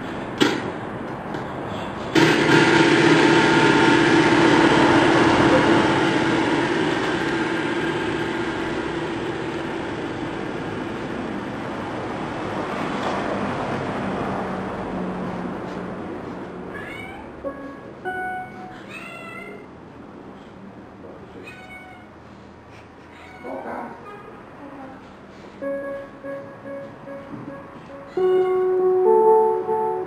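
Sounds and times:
dense electronic noise: 2.1 - 16.4, 25.6 - 30.0
steady droning tones: 2.2 - 12.7.

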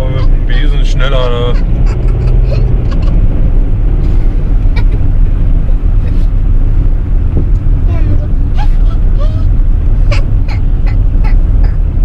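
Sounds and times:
car cabin road rumble: 0.0 - 12.0
high voice: 7.9 - 9.5.

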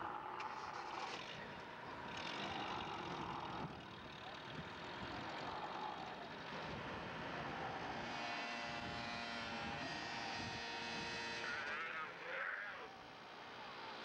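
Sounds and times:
truck engine running: 0.0 - 9.8.

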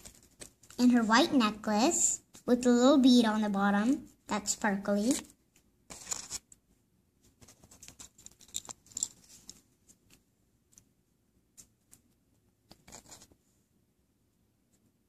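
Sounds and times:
scratchy rustles of handling: 0.0 - 1.5, 5.0 - 13.6.

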